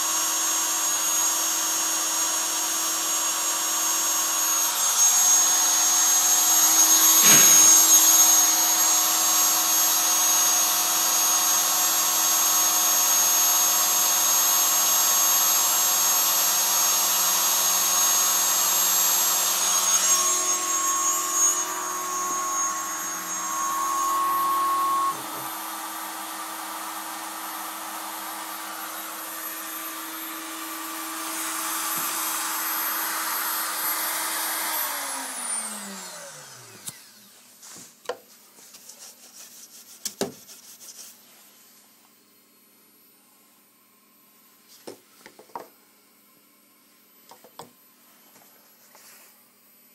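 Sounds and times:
cnc router engraving wood: 0.0 - 37.3.

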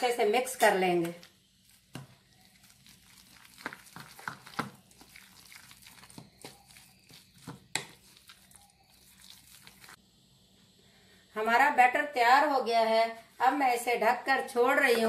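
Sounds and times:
metal spoon stirring batter: 0.5 - 10.0.

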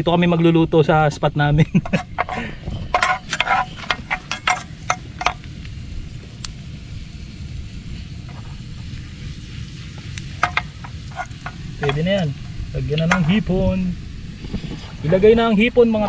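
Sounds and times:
steady low rumble: 0.0 - 16.0
garlic frying in oil: 1.7 - 16.0
utensil scraping in pan: 1.8 - 5.6, 7.8 - 15.3.

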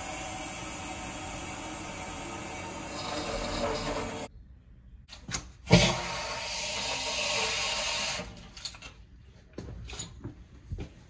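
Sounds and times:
water hissing through piping: 0.0 - 4.3.

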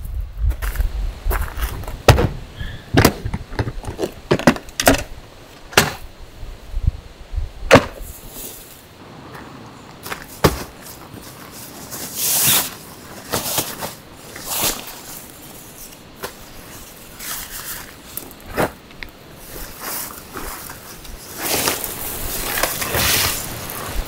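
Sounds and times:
boots crunching on gravel: 0.5 - 2.4, 8.0 - 24.0.

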